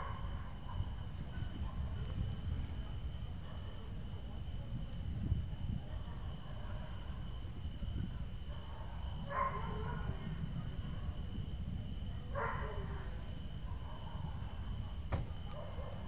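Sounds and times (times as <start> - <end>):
insect drone: 0.0 - 16.0
wind buffeting microphone: 0.0 - 16.0
dog barking: 8.5 - 10.2, 12.3 - 13.1, 15.5 - 16.0.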